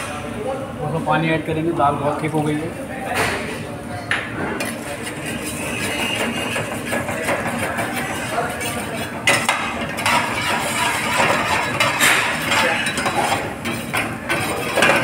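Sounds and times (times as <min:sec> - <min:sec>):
ladle scraping metal pan: 0:04.6 - 0:15.0.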